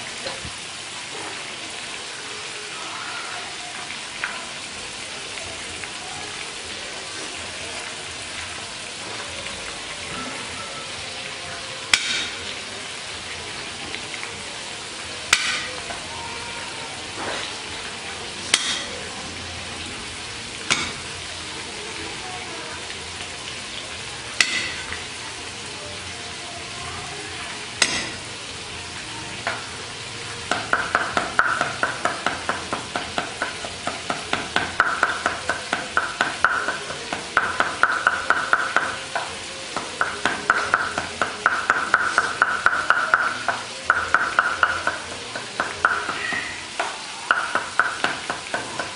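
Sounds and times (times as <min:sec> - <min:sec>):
cleaver chopping rhythmically: 0:18.5 - 0:18.9, 0:20.7 - 0:21.0, 0:27.8 - 0:28.2, 0:30.5 - 0:48.9.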